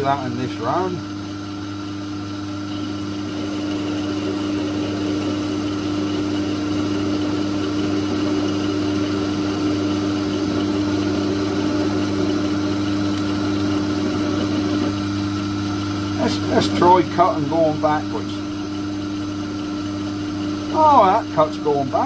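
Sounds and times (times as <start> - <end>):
lathe motor humming: 0.0 - 22.0.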